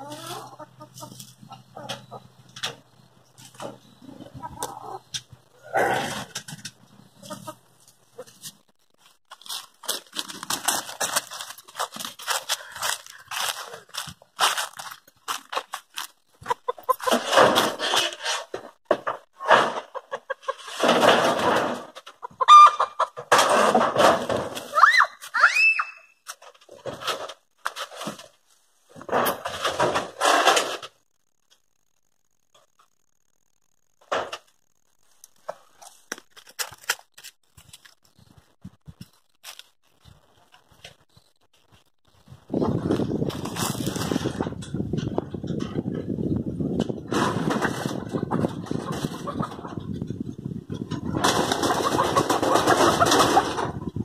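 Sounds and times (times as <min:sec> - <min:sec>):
wooden coop scraping and rustling: 0:00.0 - 0:05.1, 0:16.4 - 0:24.7, 0:26.4 - 0:30.9, 0:42.6 - 0:46.1, 0:46.7 - 0:54.0
footsteps crunching dry leaves: 0:09.0 - 0:16.2
chicken squawking: 0:22.2 - 0:23.1.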